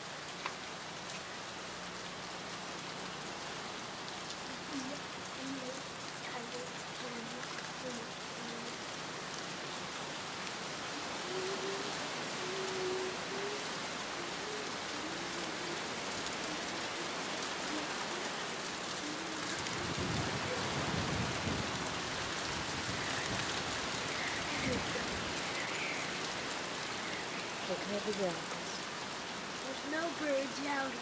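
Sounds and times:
rain and wind hiss: 0:00.0 - 0:31.0
wind gusts buffeting microphone: 0:14.9 - 0:25.6.

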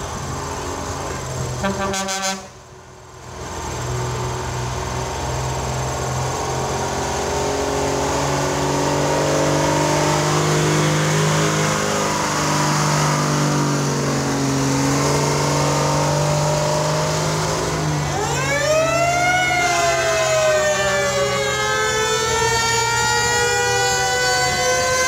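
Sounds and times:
fire truck engines running: 0:00.0 - 0:25.0
fire truck siren winding up: 0:16.5 - 0:25.0.

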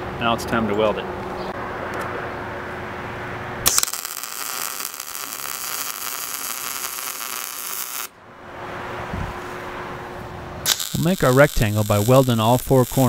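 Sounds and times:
arc striking crack: 0:03.6 - 0:08.2, 0:10.6 - 0:13.0
welding arc crackling: 0:03.6 - 0:08.2, 0:10.6 - 0:13.0.

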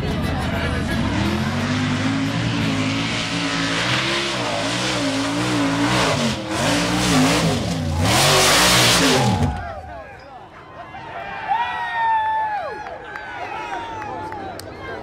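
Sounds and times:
truck engine revving: 0:00.0 - 0:09.7.

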